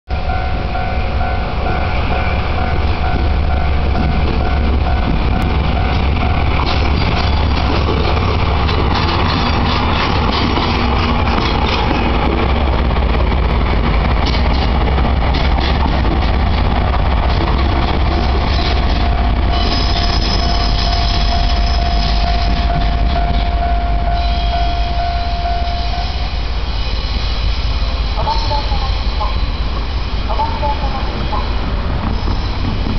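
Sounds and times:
diesel locomotive drone: 0.1s - 32.9s
wheel squeal: 18.2s - 23.5s
level crossing alarm ringing: 19.0s - 26.2s.

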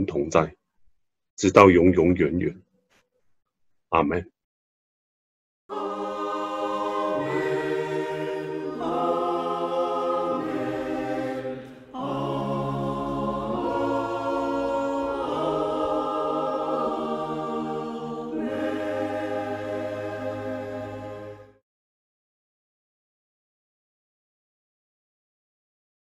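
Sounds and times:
choir singing held chords: 5.7s - 21.6s.

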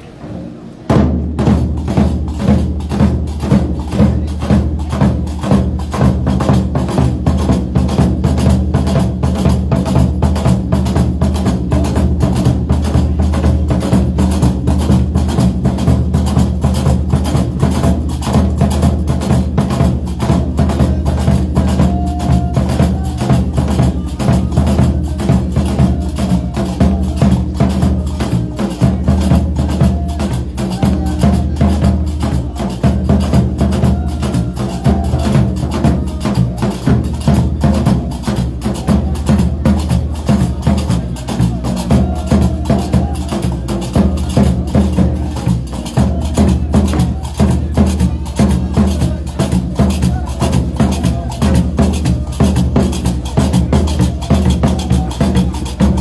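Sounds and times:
drums and hand percussion: 0.1s - 56.0s.

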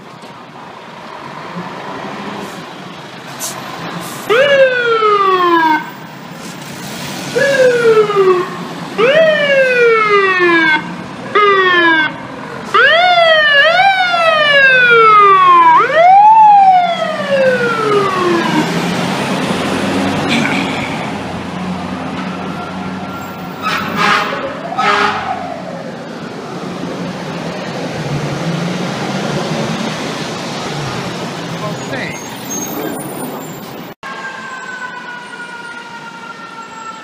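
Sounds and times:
fire truck siren whooping: 4.2s - 6.1s, 7.2s - 20.2s, 21.2s - 31.4s, 32.5s - 37.0s.

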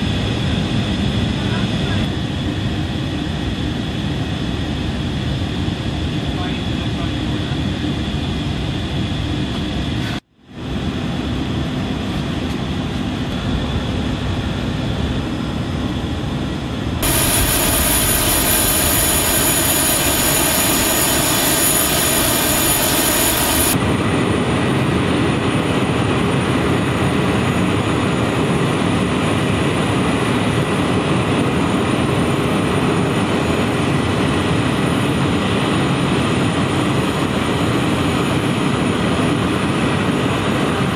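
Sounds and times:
turboprop engines running: 0.0s - 33.5s
high-pitched turbine whine: 14.3s - 24.0s.

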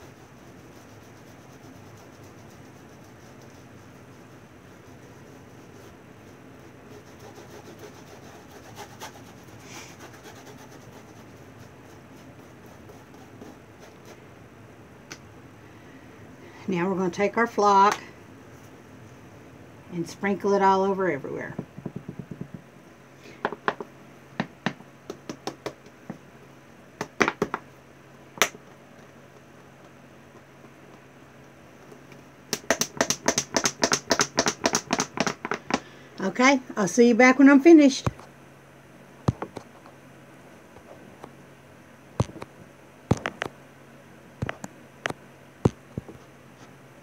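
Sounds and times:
faint steady hum: 0.0s - 47.0s
hands clicking and tapping model: 32.5s - 35.8s.

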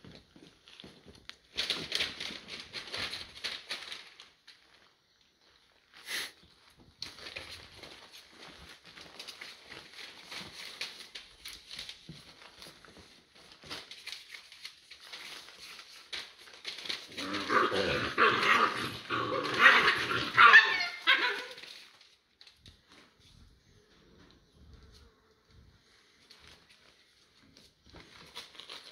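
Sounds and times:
paws scuffling on newspaper: 0.0s - 28.9s
puppies barking and yapping: 17.6s - 21.7s.

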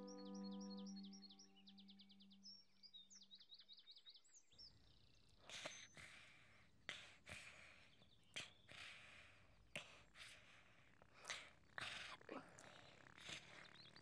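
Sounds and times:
faint bird chirps: 0.0s - 6.6s
soft breathy snoring: 5.5s - 14.0s.

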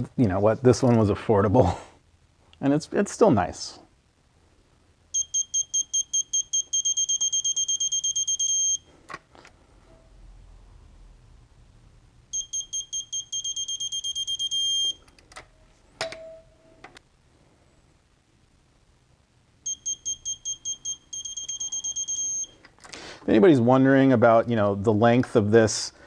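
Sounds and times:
torque wrench beeping: 5.2s - 8.8s, 19.7s - 22.6s.

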